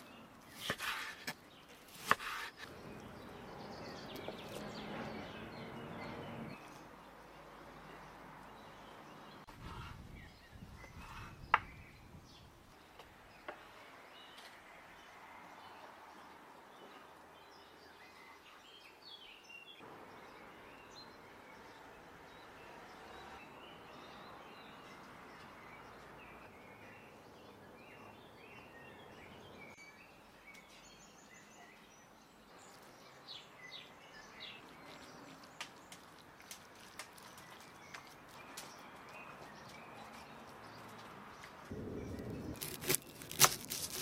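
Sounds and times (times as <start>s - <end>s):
birds chirping: 0.0s - 15.1s.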